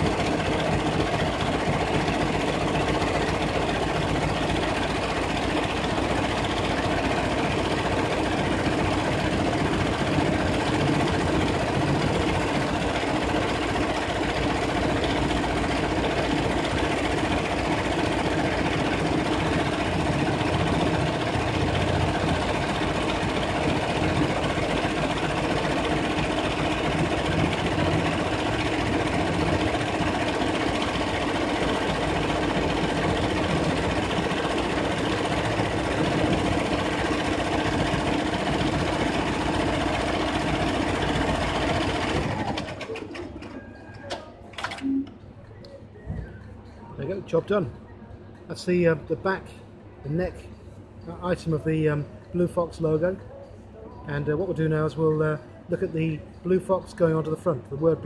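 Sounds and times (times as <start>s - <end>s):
embroidery machine stitching: 0.0s - 44.8s.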